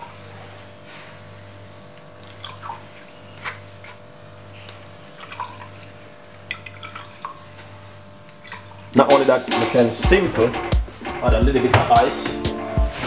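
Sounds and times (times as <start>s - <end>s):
juice dripping into a jug: 1.8s - 9.0s.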